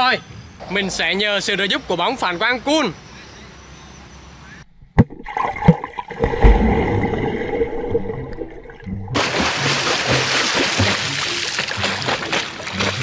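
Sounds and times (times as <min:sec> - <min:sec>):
water splashing and sloshing: 0:04.8 - 0:13.0
music with low notes: 0:08.8 - 0:13.0
hissy water rush: 0:09.2 - 0:13.0.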